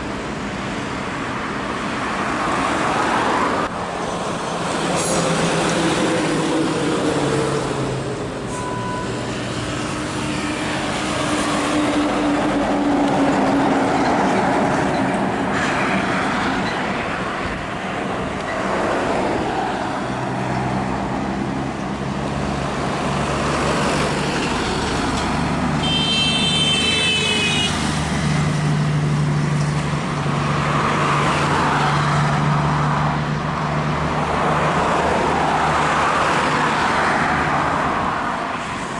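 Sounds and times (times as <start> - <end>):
truck diesel engines: 0.0 - 38.9
tyre and traffic noise: 0.0 - 38.9
high-pitched horn toot: 25.8 - 27.8.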